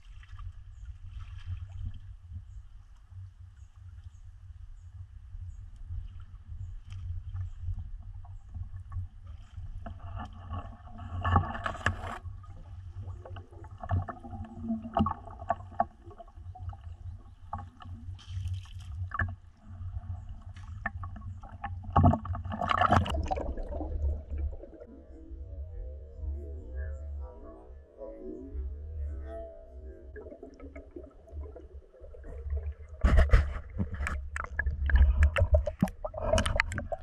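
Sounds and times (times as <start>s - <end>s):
water sloshing and splashing: 0.0s - 2.2s, 5.9s - 24.9s, 30.0s - 37.0s
underwater bubbling: 5.8s - 37.0s.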